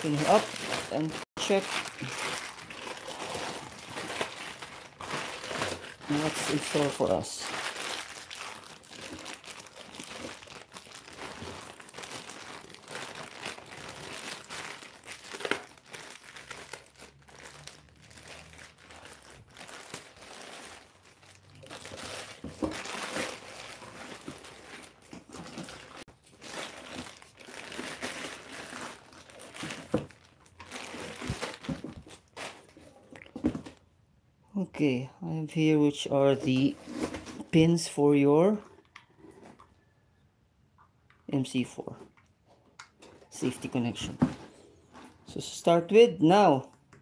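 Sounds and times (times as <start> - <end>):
plastic bag crinkling: 0.0 - 32.8.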